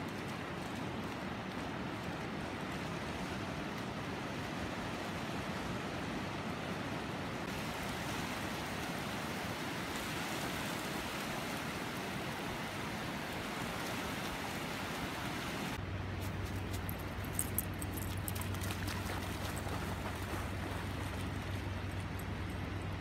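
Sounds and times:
surf washing onto beach: 0.0s - 15.8s
low steady hum: 15.7s - 23.0s.

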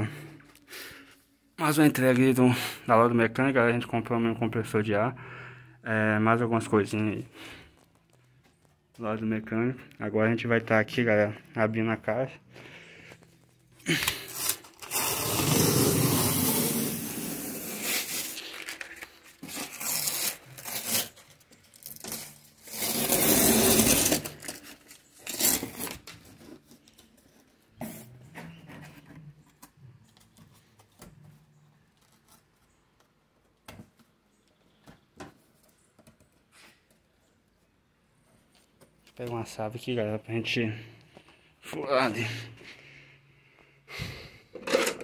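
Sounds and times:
packing tape ripping off cardboard: 13.8s - 28.2s
cardboard scraping and rustling: 14.1s - 29.6s.

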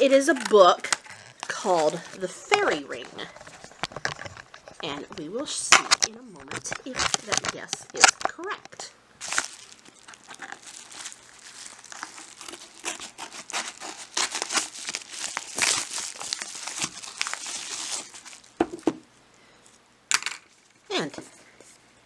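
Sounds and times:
envelope tearing and crinkling: 0.0s - 5.0s, 5.7s - 8.3s, 9.2s - 18.6s
book knocks: 18.6s - 19.0s.

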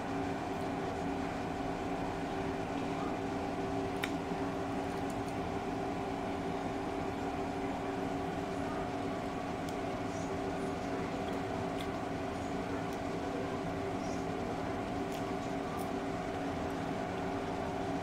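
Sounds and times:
steady mechanical hum: 0.0s - 18.0s
faint clicks of shrimp peeling: 3.9s - 5.4s, 9.6s - 10.1s, 11.2s - 13.1s, 14.1s - 17.4s.

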